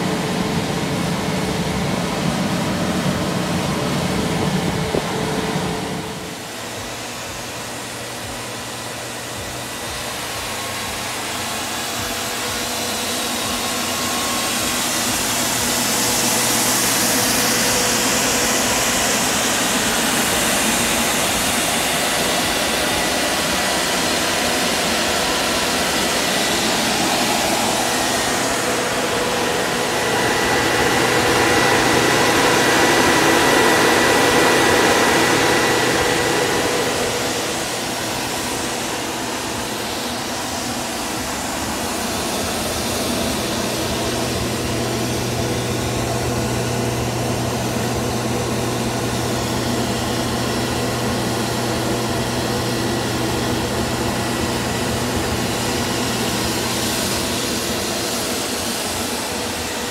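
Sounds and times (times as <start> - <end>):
electric fans whirring: 0.0 - 59.9.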